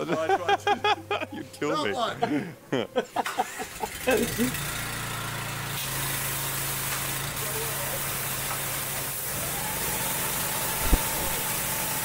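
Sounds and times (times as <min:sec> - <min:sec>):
pressure washer engines humming: 0:02.4 - 0:12.0
high-pressure jets whining: 0:03.6 - 0:12.0.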